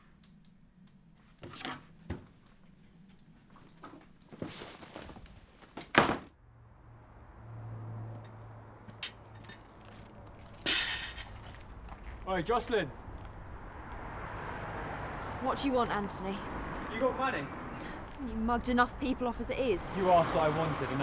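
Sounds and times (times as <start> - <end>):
street ambience hum: 0.0 - 21.0
door slamming shut: 5.9 - 6.3.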